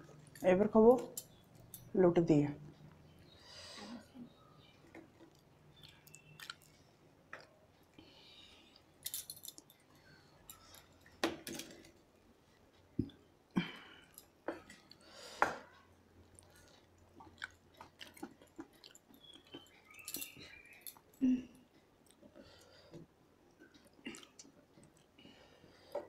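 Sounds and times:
chewing and wet mouth sounds: 0:04.9 - 0:11.1, 0:14.0 - 0:22.8, 0:23.5 - 0:25.2.

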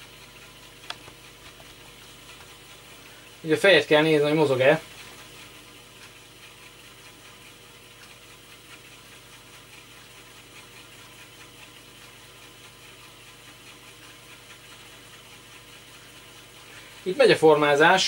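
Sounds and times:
floppy drive running: 0:00.0 - 0:18.0
light ticks from drive head: 0:00.4 - 0:01.3, 0:06.0 - 0:08.8.

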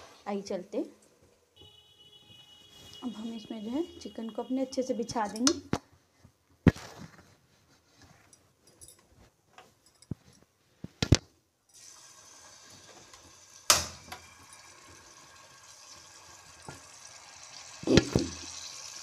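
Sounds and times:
chicken sizzling in a frying pan: 0:11.8 - 0:19.0.

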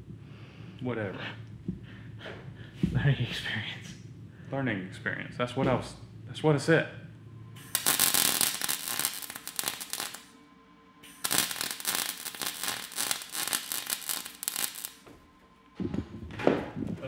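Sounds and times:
welding arc crackling: 0:07.6 - 0:10.3, 0:11.0 - 0:15.0.

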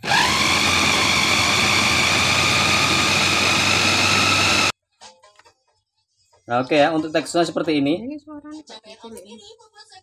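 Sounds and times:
food chopper motor whining: 0:00.0 - 0:04.7.

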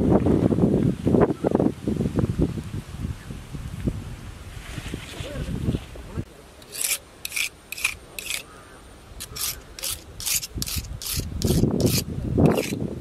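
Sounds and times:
knife scraping on rock: 0:06.6 - 0:08.5, 0:09.2 - 0:12.8.

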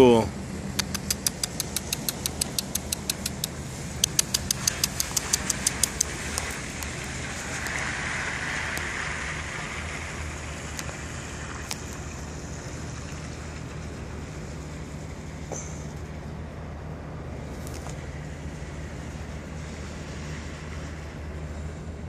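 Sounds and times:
sharp high ticks: 0:00.7 - 0:07.8.

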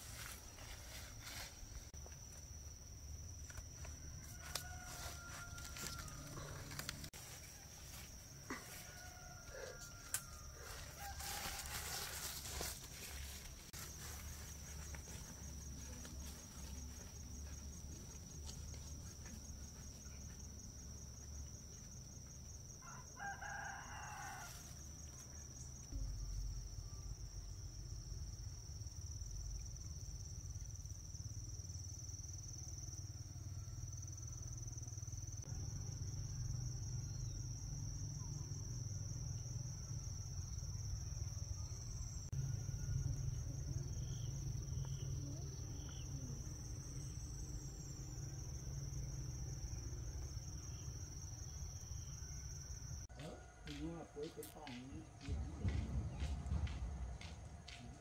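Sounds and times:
insects droning: 0:00.0 - 0:58.0
rooster crowing: 0:03.9 - 0:12.7, 0:22.8 - 0:24.8, 0:53.1 - 0:57.9.

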